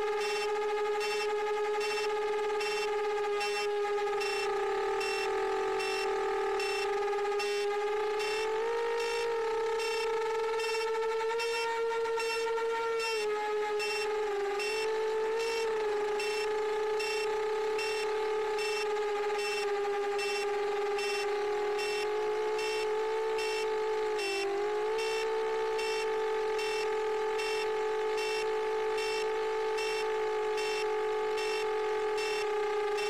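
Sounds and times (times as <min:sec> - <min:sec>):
drone propellers whining: 0:14.6 - 0:33.0.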